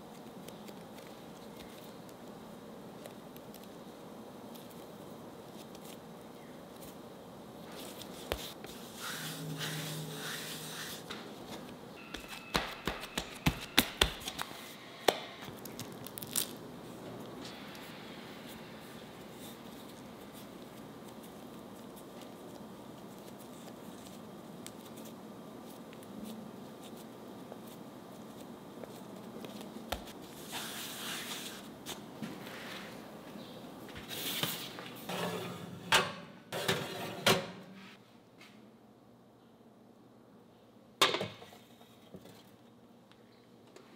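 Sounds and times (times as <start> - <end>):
dough rustling and crinkling: 15.4 - 17.6, 18.8 - 35.1.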